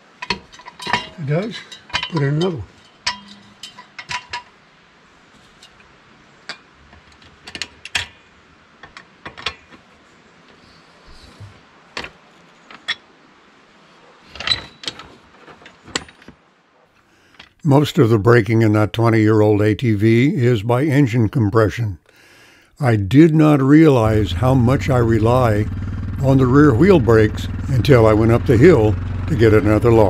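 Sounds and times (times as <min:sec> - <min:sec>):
metal jack clicks and clanks: 0:00.2 - 0:04.5, 0:06.5 - 0:08.2.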